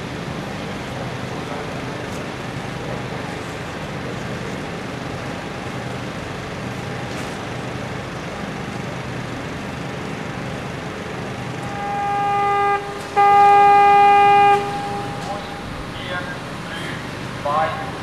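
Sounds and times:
steady low hum: 0:10.4 - 0:18.0
warning horn blasts: 0:11.5 - 0:18.0.

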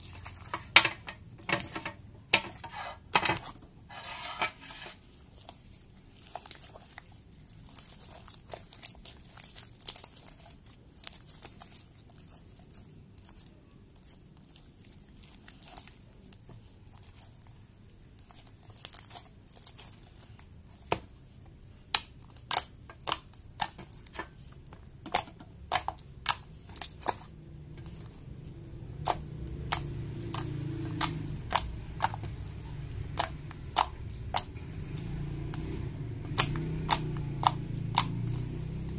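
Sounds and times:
slime sticky clicks and pops: 0:36.3 - 0:38.4.

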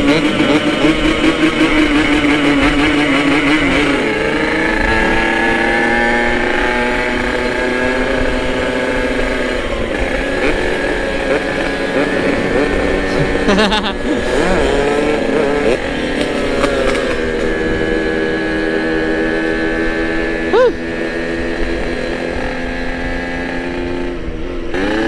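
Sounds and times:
motorcycle engine accelerating: 0:00.0 - 0:25.0.

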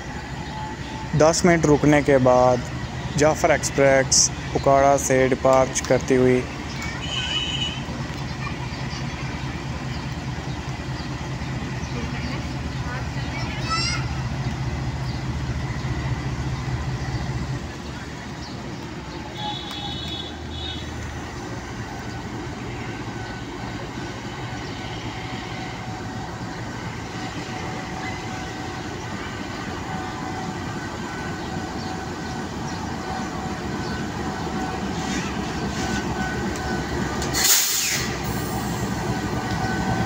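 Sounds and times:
diesel locomotive engine running: 0:00.0 - 0:40.0
loud hiss: 0:37.3 - 0:39.0.

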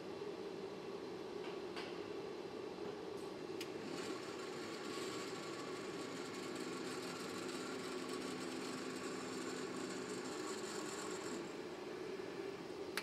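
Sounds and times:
factory machinery humming: 0:03.6 - 0:13.0.

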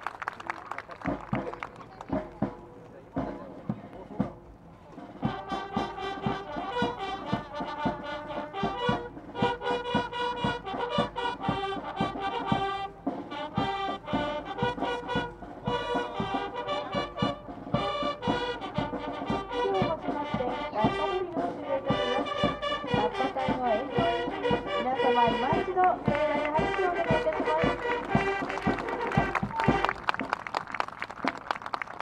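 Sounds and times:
bugles playing in unison: 0:00.0 - 0:32.0
bass drum beat: 0:05.2 - 0:30.6.

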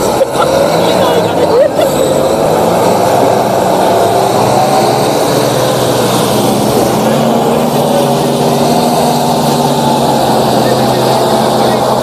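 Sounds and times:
off-road engine running hard: 0:00.0 - 0:12.0.

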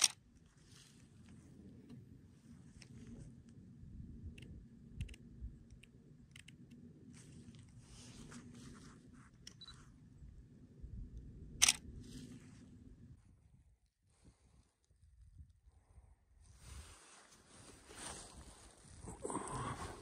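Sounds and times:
handling clicks and rustles: 0:00.0 - 0:03.6
low rumble: 0:00.4 - 0:13.9
sharp click: 0:11.6 - 0:11.8.

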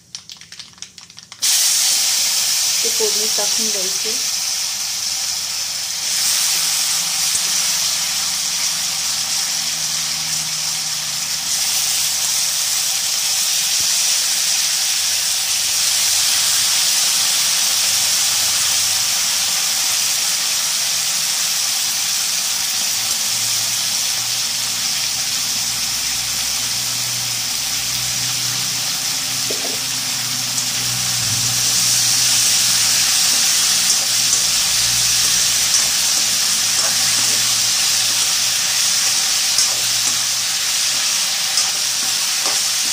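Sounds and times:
potato slices sizzling in hot oil: 0:00.2 - 0:42.9
water spitting in oil: 0:00.8 - 0:03.6.

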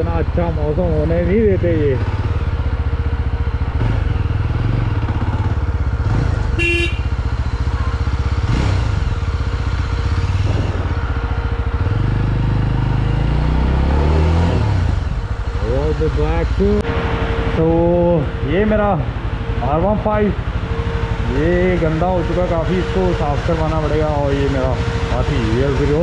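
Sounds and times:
motorcycle engine idling: 0:00.0 - 0:13.2, 0:15.0 - 0:16.8.

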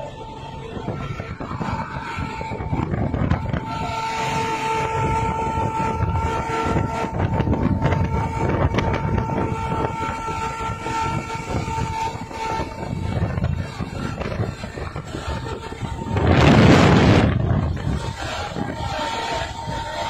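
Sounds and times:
truck air horn blaring: 0:00.0 - 0:20.0
truck engines rumbling: 0:00.0 - 0:20.0.

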